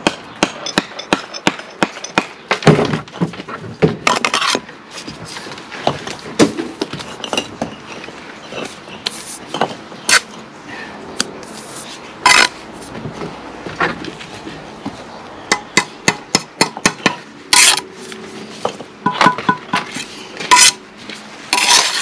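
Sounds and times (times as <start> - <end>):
trowel scraping and clinking: 4.1 - 5.2, 7.0 - 10.4, 11.6 - 12.6, 17.5 - 17.9, 19.1 - 20.8, 21.5 - 22.0.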